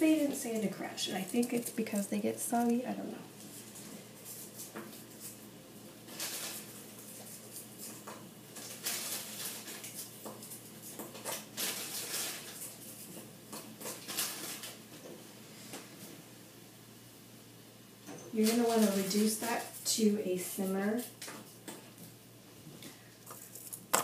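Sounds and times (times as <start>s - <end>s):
crackers crinkling and crunching: 0.5s - 2.8s, 6.0s - 14.9s, 18.4s - 19.9s, 23.2s - 24.0s.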